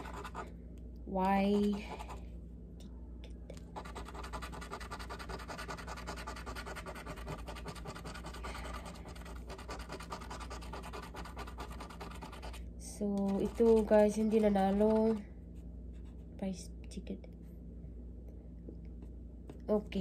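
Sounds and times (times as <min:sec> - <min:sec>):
scratching a scratch-off ticket: 0:00.0 - 0:00.4, 0:01.4 - 0:02.2, 0:03.6 - 0:12.6, 0:13.2 - 0:15.2.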